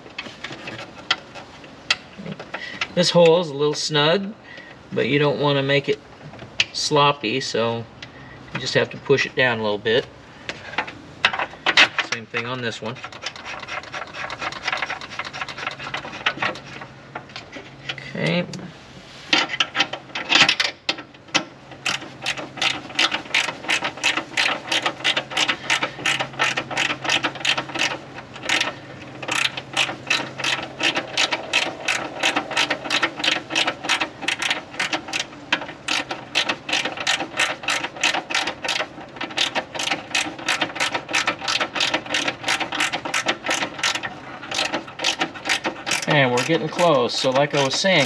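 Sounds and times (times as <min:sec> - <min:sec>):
hand ratchet clicking: 0:19.4 - 0:48.0.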